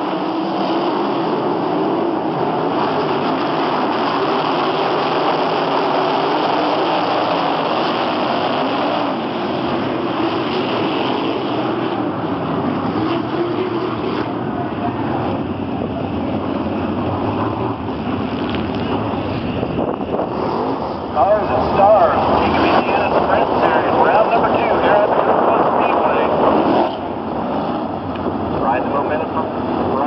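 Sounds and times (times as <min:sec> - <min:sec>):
race car engines passing: 0:00.0 - 0:30.0.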